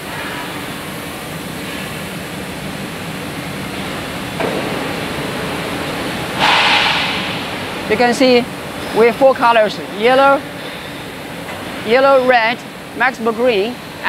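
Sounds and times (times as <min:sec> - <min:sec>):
machinery and ventilation hum: 0:00.0 - 0:14.0
short loud hiss: 0:06.4 - 0:07.6.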